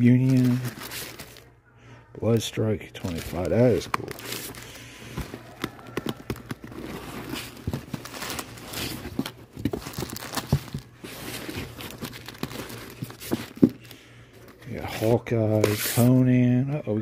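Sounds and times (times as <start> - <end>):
comic book pages rustling: 3.0 - 16.2.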